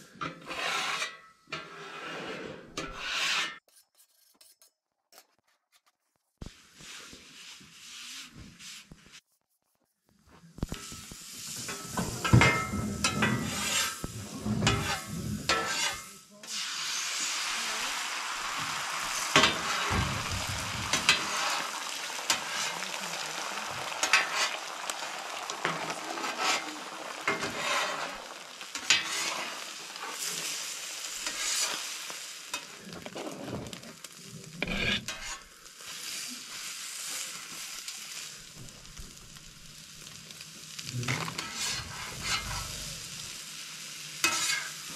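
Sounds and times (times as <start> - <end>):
metal spatula scraping griddle: 0.1 - 5.4, 10.8 - 16.6, 19.1 - 23.2, 24.0 - 35.6, 40.7 - 43.4, 44.2 - 44.9
food sizzling on a griddle: 6.4 - 9.2, 10.3 - 44.9.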